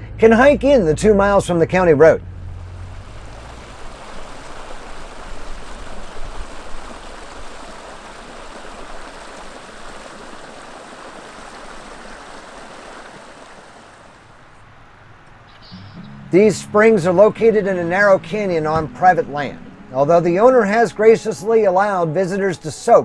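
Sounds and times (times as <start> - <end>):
water rushing over rocks: 2.5 - 14.7.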